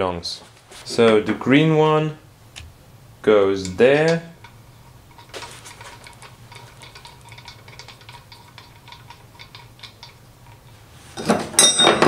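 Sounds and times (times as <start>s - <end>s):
spanner clattering: 3.6s - 12.0s.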